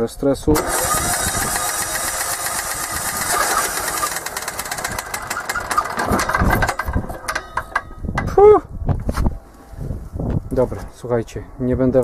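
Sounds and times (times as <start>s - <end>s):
diesel engine firing unevenly: 0.6s - 7.8s.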